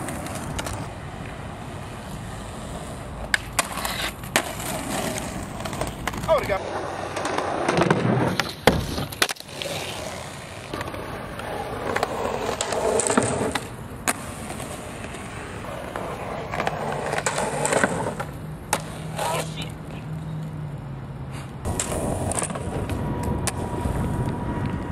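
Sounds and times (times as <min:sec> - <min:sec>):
skateboard popping and landing: 0:00.0 - 0:20.1, 0:21.6 - 0:24.9
skateboard wheels rolling on asphalt: 0:00.0 - 0:24.9.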